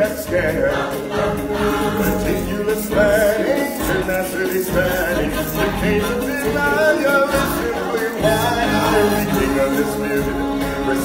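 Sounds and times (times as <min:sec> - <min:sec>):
choir singing stage music: 0:00.0 - 0:11.0.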